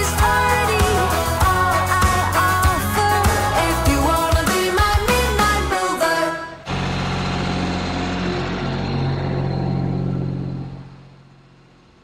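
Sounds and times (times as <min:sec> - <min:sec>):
tractor diesel engine running: 0:06.6 - 0:12.0.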